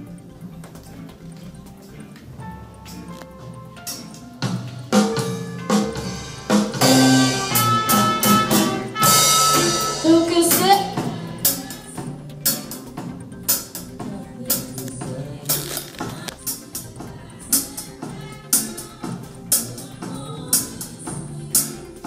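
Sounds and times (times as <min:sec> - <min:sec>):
held pitched instrument notes: 0:01.3 - 0:22.0
drum kit hits: 0:03.8 - 0:20.2
cymbal crashes: 0:05.0 - 0:11.6.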